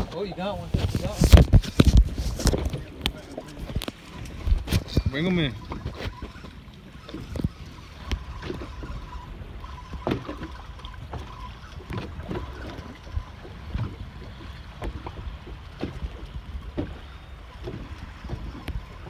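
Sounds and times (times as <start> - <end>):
water lapping against boat hull: 0.0 - 19.0
wind buffeting microphone: 0.0 - 19.0.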